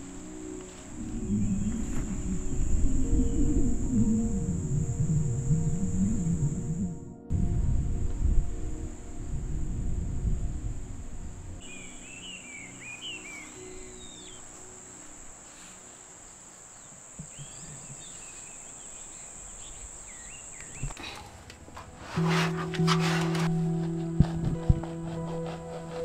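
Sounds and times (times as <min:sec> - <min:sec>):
music: 0:00.0 - 0:18.4, 0:21.6 - 0:26.0
insects trilling: 0:00.0 - 0:26.0
bird chirps: 0:11.6 - 0:15.1, 0:16.7 - 0:21.0.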